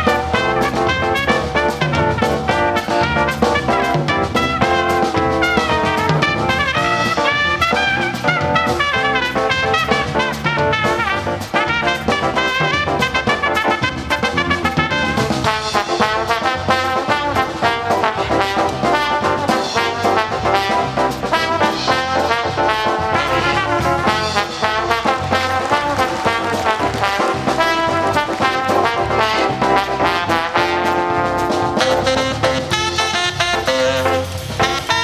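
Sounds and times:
lively brass music with steady beat: 0:00.0 - 0:35.0.

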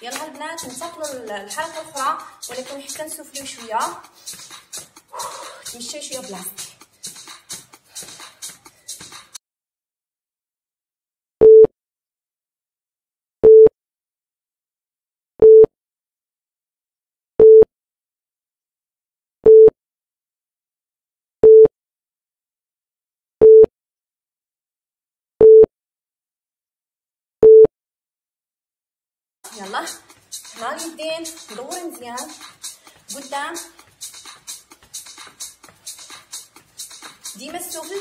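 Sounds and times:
electronic timer beeps: 0:11.4 - 0:11.7, 0:13.4 - 0:13.7, 0:15.4 - 0:15.7, 0:17.4 - 0:17.7, 0:19.4 - 0:19.7, 0:21.4 - 0:21.7, 0:23.4 - 0:23.7, 0:25.4 - 0:25.7, 0:27.4 - 0:27.7.

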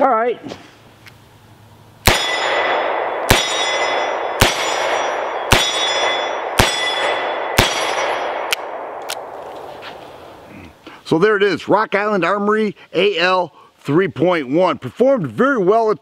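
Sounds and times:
steel targets ringing: 0:02.0 - 0:08.5
revolver shots: 0:02.0 - 0:09.4.

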